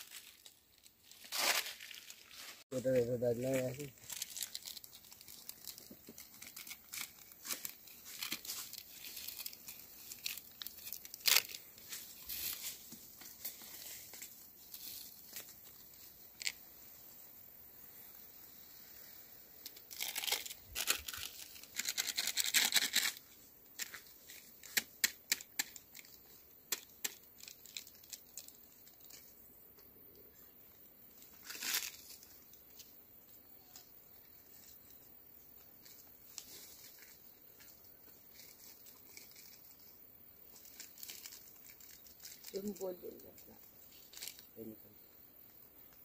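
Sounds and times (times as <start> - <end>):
firewood crunching and rustling: 0.0 - 2.6.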